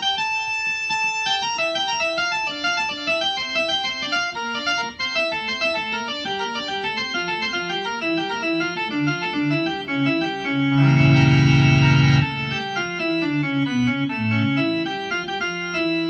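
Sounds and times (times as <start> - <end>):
organ playing running notes: 0.0 - 16.0
organ chord with pulsing wobble: 5.7 - 15.2.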